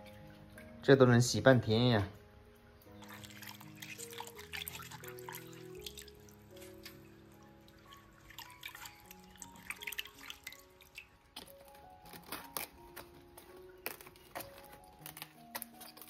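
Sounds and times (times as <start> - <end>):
soft background music: 0.0 - 16.0
cabbage leaves crackling: 2.8 - 16.0
water splashing and dripping: 2.9 - 15.3.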